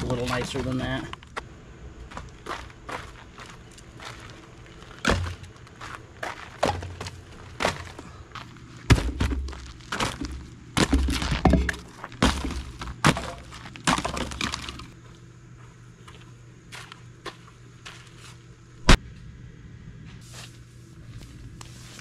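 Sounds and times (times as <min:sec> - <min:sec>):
firewood logs knocking together: 0:05.0 - 0:05.6, 0:06.3 - 0:08.0, 0:08.8 - 0:15.0.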